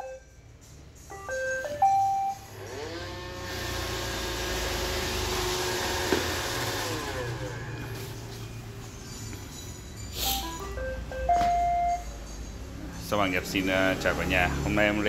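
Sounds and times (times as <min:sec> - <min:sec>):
electronic beeps tune: 0:00.0 - 0:00.4, 0:01.1 - 0:02.5, 0:09.0 - 0:12.2
robot vacuum motors whining: 0:02.5 - 0:08.2.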